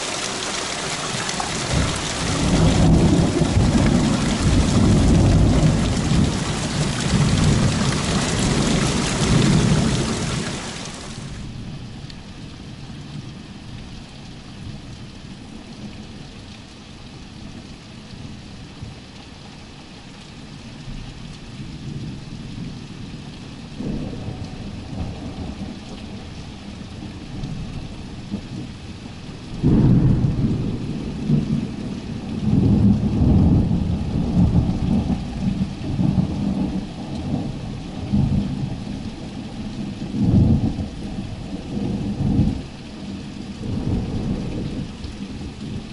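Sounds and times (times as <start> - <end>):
thunder rolling: 0.0 - 11.4
steady rain: 0.0 - 45.9.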